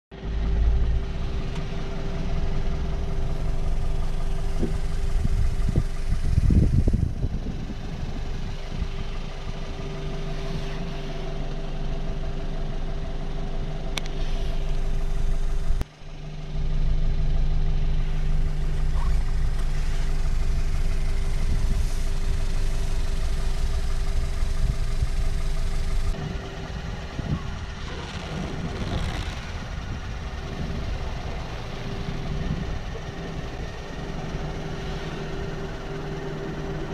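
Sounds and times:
air compressor running: 0.3 - 36.9.

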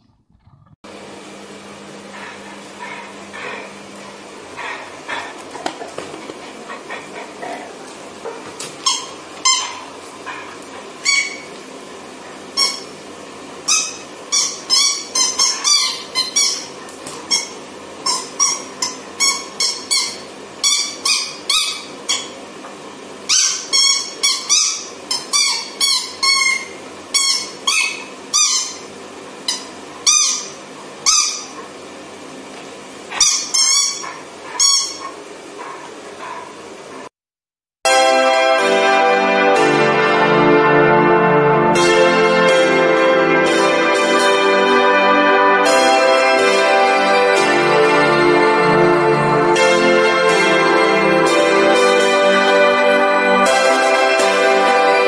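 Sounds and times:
squeaky toy squeaking: 8.8 - 9.8, 12.6 - 12.9, 13.7 - 22.4, 23.3 - 28.9, 29.5 - 31.5, 33.2 - 35.1.

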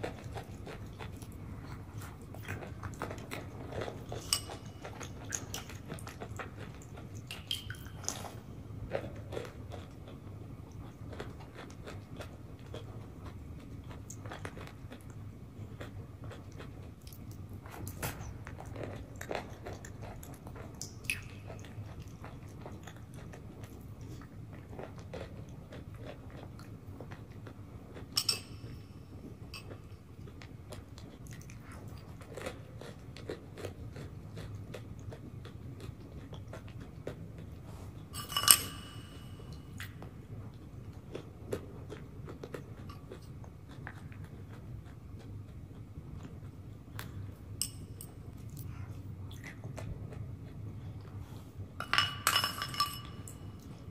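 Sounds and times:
spoon clinks: 28.2 - 28.8, 38.2 - 39.6, 51.8 - 53.7.

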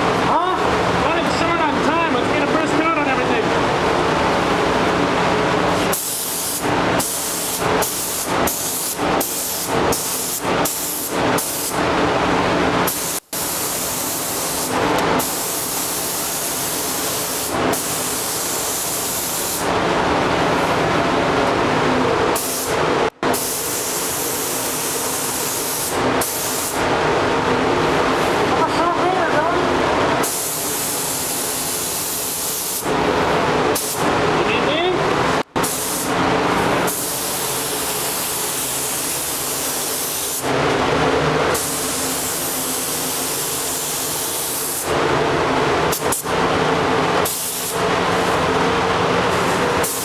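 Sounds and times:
paint spray gun hissing: 5.9 - 11.8, 12.9 - 19.7, 22.4 - 26.8, 30.2 - 32.9, 35.6 - 36.2, 36.9 - 40.5, 41.5 - 44.9, 47.2 - 48.3, 49.4 - 50.0.

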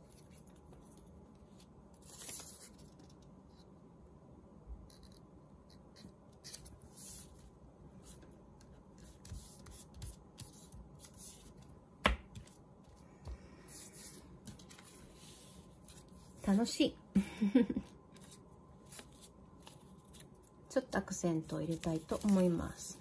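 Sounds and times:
paper rustling and rubbing: 0.0 - 3.2, 21.4 - 22.8.

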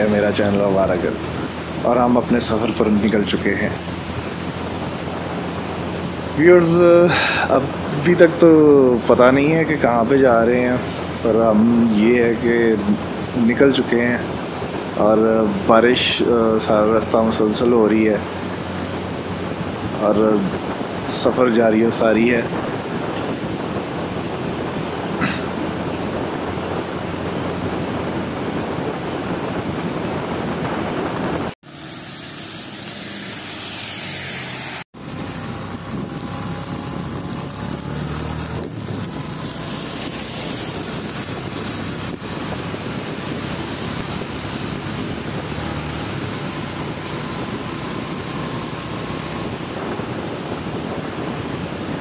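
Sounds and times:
wind rushing over microphone: 0.0 - 52.0
motorcycle engine running: 22.6 - 52.0.

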